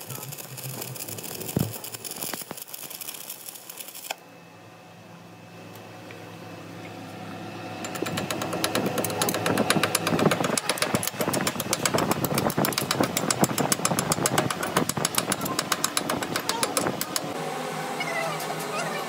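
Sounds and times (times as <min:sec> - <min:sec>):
arc welding crackle: 0:00.0 - 0:04.2
low machine hum: 0:00.0 - 0:19.0.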